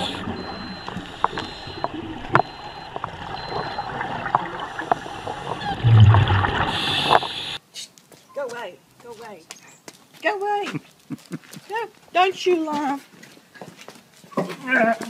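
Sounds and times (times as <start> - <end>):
muffled underwater gurgling: 0.0 - 7.6
low rumble: 0.3 - 6.8.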